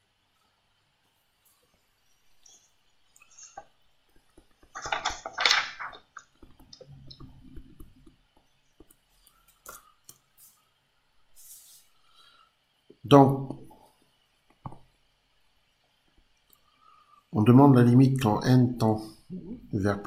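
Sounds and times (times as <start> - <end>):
short hiss: 9.2 - 12.4.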